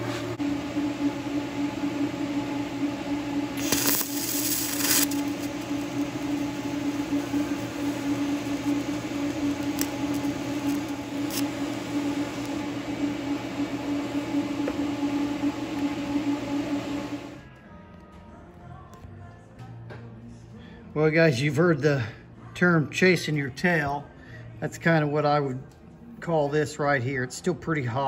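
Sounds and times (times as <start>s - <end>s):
welder electrical hum: 0.0s - 17.7s
welding arc crackling hiss: 3.5s - 12.6s.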